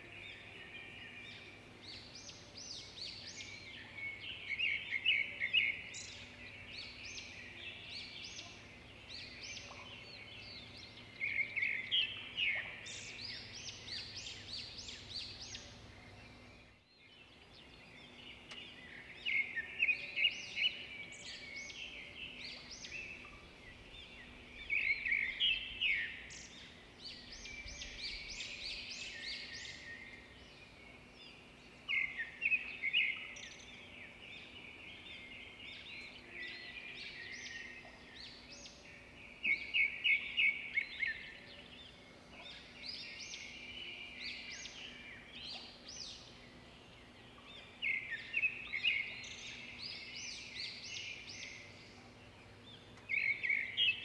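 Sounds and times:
songbirds chirping and trilling: 0:00.0 - 0:54.0.

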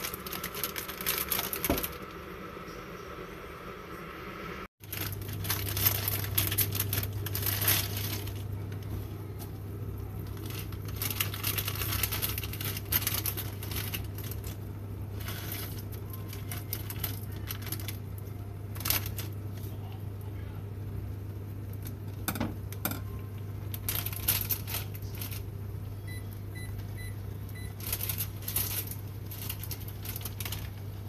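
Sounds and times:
packet rustling: 0:00.0 - 0:02.2, 0:04.8 - 0:08.9, 0:10.0 - 0:19.6, 0:23.6 - 0:25.5, 0:27.6 - 0:31.0
electric hob humming: 0:00.0 - 0:31.0.

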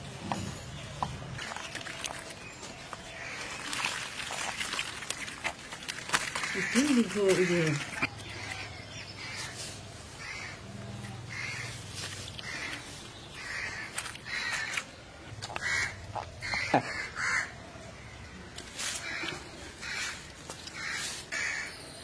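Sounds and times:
crows cawing: 0:06.2 - 0:09.6, 0:10.2 - 0:10.7, 0:11.3 - 0:12.8, 0:13.4 - 0:14.9, 0:15.5 - 0:17.6, 0:18.9 - 0:21.8.

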